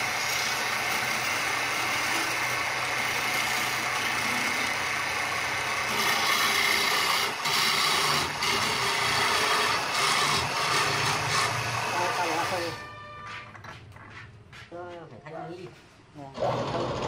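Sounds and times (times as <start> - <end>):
lathe motor hum: 0.0 - 12.8.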